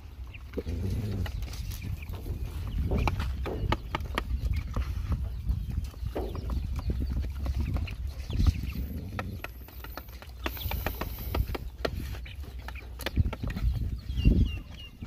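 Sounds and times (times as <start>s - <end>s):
chicken pecking at tray: 0.0s - 15.0s.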